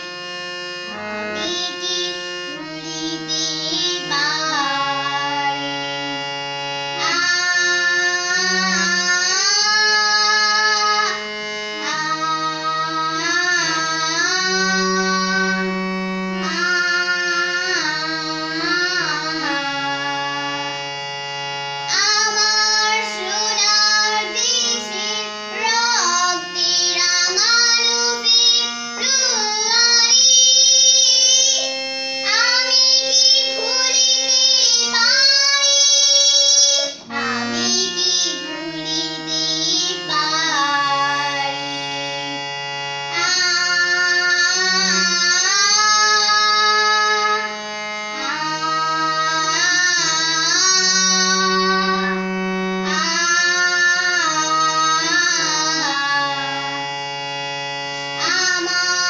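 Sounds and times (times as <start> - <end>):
harmonium: 0.0 - 59.0
girl singing: 0.8 - 15.8, 16.4 - 20.9, 21.9 - 57.0, 58.1 - 59.0.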